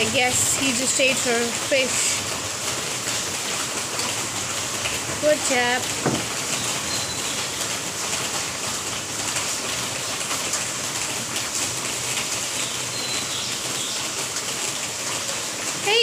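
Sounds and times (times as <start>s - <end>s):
rain on hard surfaces: 0.0s - 16.0s.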